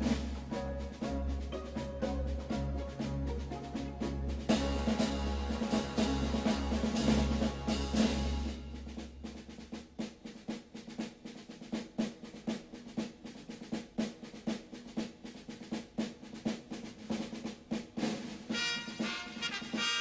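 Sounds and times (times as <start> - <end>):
brass-like melody: 0.0 - 9.0, 18.5 - 20.0
steady drum beat: 0.0 - 20.0.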